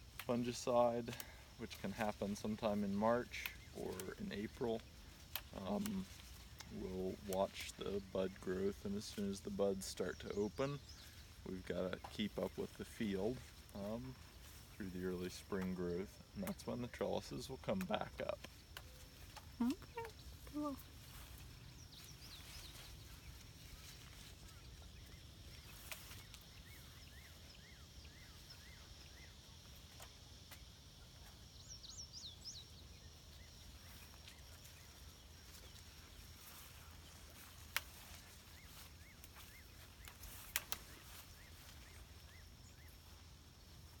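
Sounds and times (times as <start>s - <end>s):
small birds chirping: 0.0s - 44.0s
sharp clicks: 40.5s - 40.8s.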